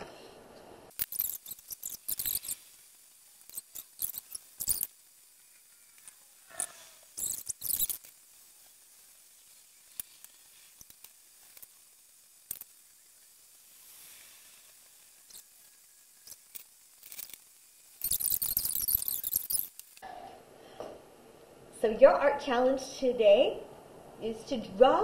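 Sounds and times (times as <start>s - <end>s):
markers scratching on paper: 1.0s - 2.7s, 3.4s - 4.9s, 6.5s - 8.2s, 18.0s - 19.9s
small clicks: 9.9s - 11.8s, 12.4s - 13.0s, 14.2s - 20.0s.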